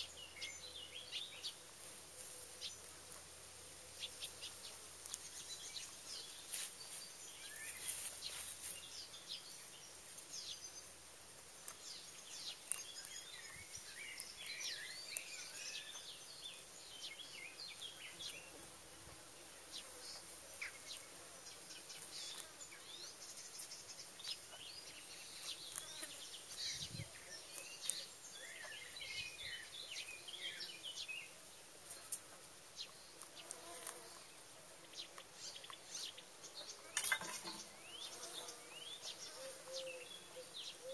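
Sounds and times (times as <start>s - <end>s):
songbirds chirping: 0.0s - 40.9s
insect buzz: 33.1s - 34.9s, 36.0s - 40.9s.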